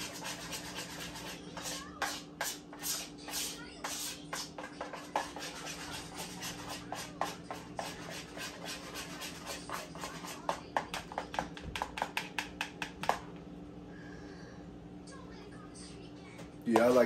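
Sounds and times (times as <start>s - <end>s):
utensil whisking in bowl: 0.0s - 13.2s, 16.7s - 17.0s.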